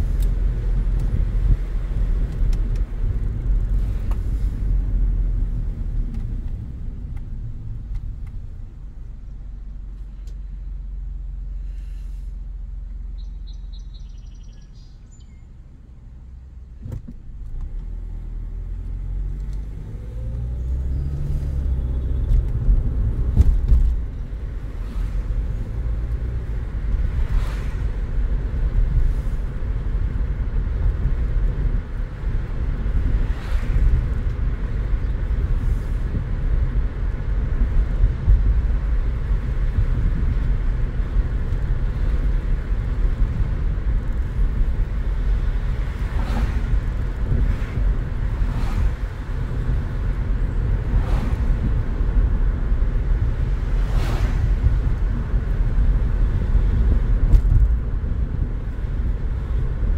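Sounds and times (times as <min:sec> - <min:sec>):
tyre and road rumble: 0:00.0 - 0:59.9
car engine accelerating: 0:15.9 - 0:59.9.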